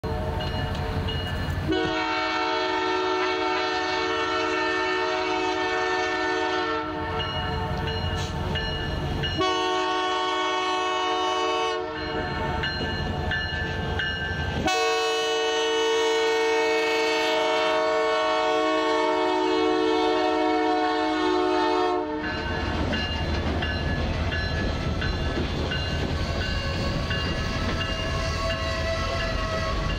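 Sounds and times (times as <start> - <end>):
low rumble of train: 0.0 - 29.9
locomotive air horn blasts: 1.7 - 8.4, 9.4 - 12.5, 14.6 - 22.5, 26.1 - 29.9.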